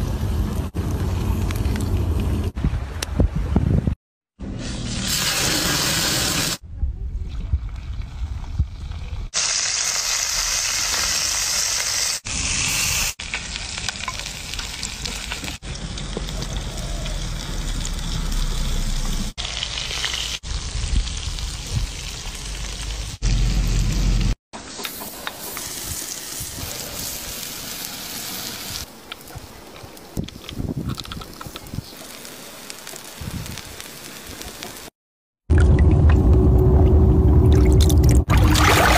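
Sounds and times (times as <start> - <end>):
seafood sizzling in oil: 9.4 - 15.6.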